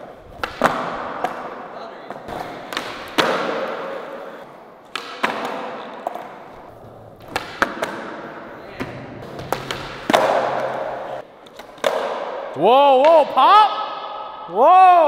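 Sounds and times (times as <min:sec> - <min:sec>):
skateboard wheels rolling on concrete: 0:00.0 - 0:12.1
skateboard clacks: 0:07.2 - 0:12.4.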